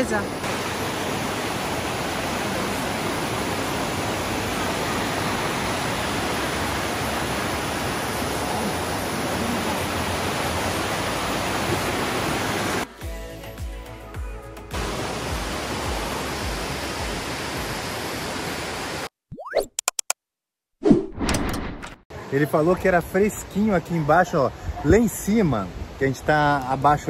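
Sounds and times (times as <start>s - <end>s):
stream rushing over rocks: 0.0s - 12.9s, 14.8s - 19.1s.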